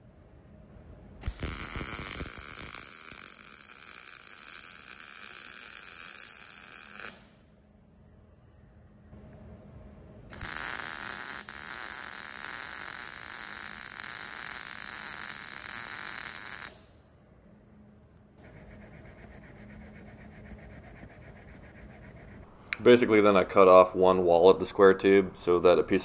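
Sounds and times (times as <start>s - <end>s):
welding arc sizzling: 1.2s - 7.4s, 10.3s - 17.0s.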